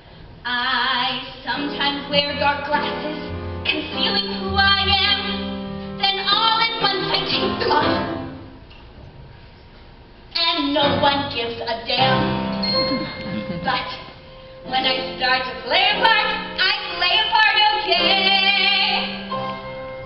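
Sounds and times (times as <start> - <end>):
live instrumental accompaniment: 10.8 - 17.0.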